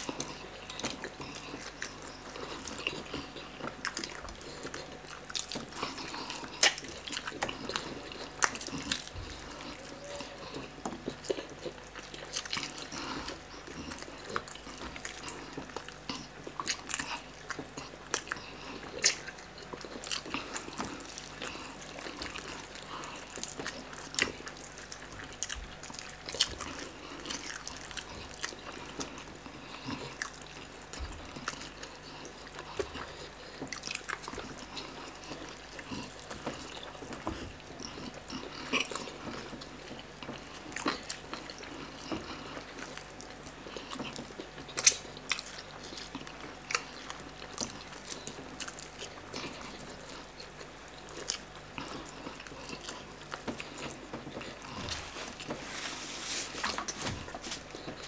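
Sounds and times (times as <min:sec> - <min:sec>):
chewing and wet smacking: 0:00.0 - 0:58.0.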